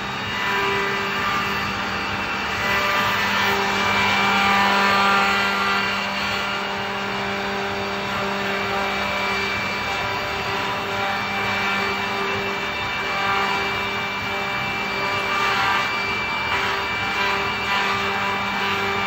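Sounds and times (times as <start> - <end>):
cutters routing wood: 0.0 - 19.0
milling machine motors whining: 0.0 - 19.0.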